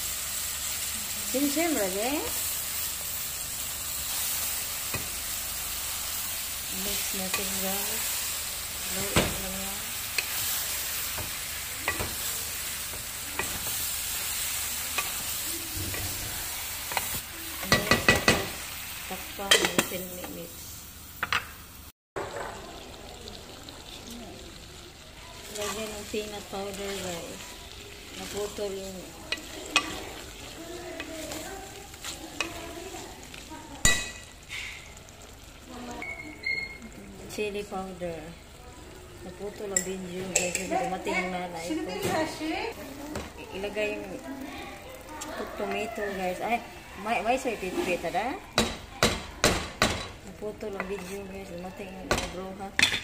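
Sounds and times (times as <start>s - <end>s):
eggplant sizzling in a pot: 0.0s - 53.0s
wooden spatula stirring: 25.2s - 33.6s, 50.7s - 51.7s
spatula scraping and knocking pot: 29.3s - 30.4s, 50.7s - 51.3s.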